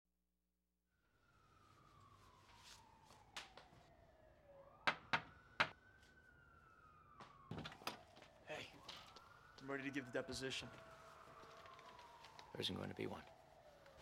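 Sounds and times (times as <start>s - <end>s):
distant siren wailing: 0.9s - 14.0s
knocks on a door: 4.9s - 5.7s.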